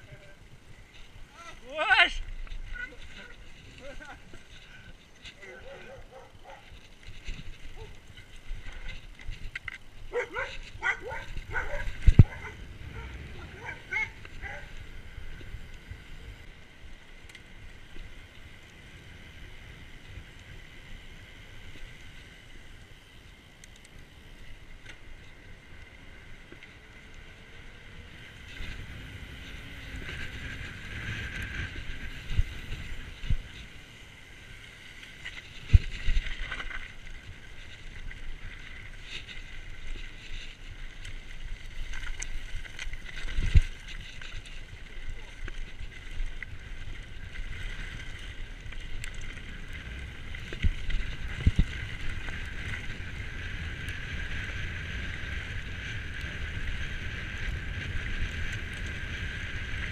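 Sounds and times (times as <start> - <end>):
bike tyres rolling: 0.0 - 59.9
wind on microphone: 5.4 - 16.2, 28.1 - 33.8, 43.0 - 59.9.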